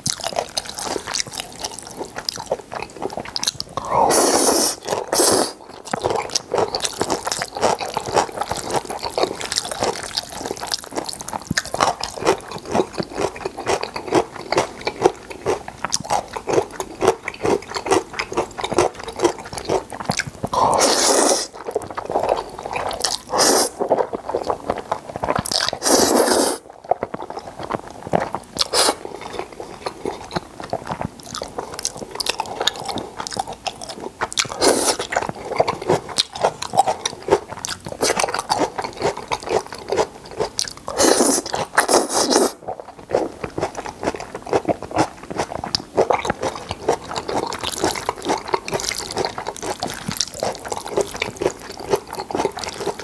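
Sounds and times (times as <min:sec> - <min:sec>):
wet chewing: 0:00.0 - 0:53.0
noodle slurping: 0:03.1 - 0:11.0, 0:18.6 - 0:27.0, 0:28.6 - 0:30.3, 0:34.4 - 0:39.1, 0:40.9 - 0:43.8.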